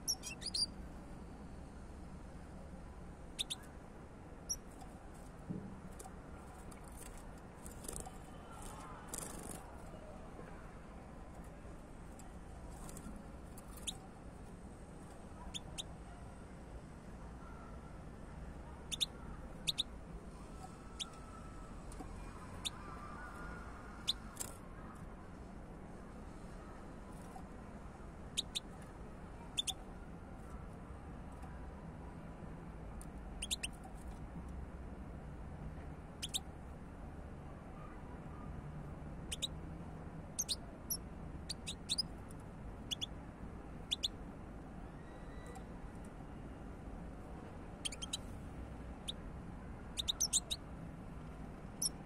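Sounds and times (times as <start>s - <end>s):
bird chirping: 0.0s - 0.8s, 3.3s - 3.7s, 4.5s - 4.8s, 12.8s - 14.1s, 15.4s - 15.9s, 18.8s - 24.6s, 28.3s - 29.8s, 33.4s - 34.0s, 36.2s - 36.5s, 39.3s - 39.6s, 40.4s - 42.2s, 42.8s - 43.2s, 43.8s - 44.2s, 47.8s - 48.4s, 49.9s - 50.6s, 51.8s - 52.0s
goldfinch chirps: 0.0s - 0.8s, 3.4s - 3.7s, 15.5s - 15.9s, 18.9s - 19.9s, 28.4s - 28.7s, 29.5s - 29.8s, 33.4s - 33.8s, 36.2s - 36.4s, 39.3s - 39.5s, 40.4s - 42.1s, 42.9s - 43.1s, 43.9s - 44.1s, 47.8s - 48.3s, 50.0s - 50.6s, 51.8s - 52.0s.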